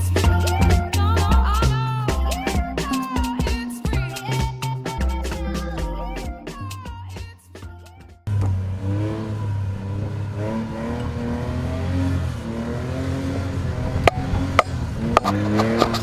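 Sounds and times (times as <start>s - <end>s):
buggy engine revving: 8.2s - 16.0s.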